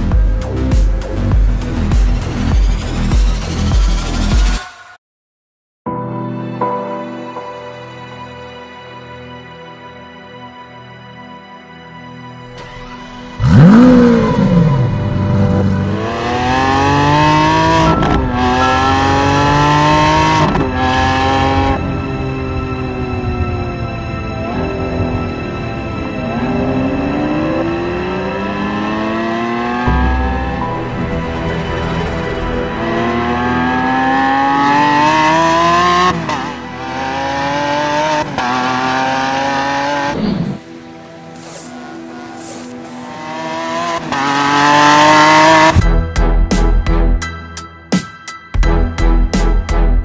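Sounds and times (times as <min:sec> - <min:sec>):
engine accelerating hard: 0:13.3 - 0:40.6, 0:42.0 - 0:45.8.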